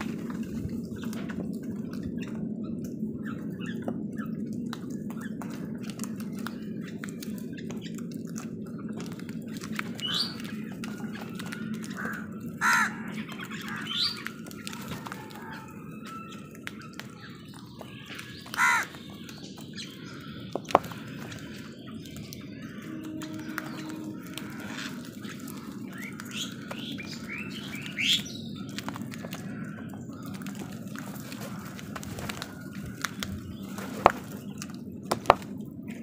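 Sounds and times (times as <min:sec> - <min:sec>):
crows cawing: 0:10.9 - 0:34.2
low hum: 0:19.6 - 0:36.0.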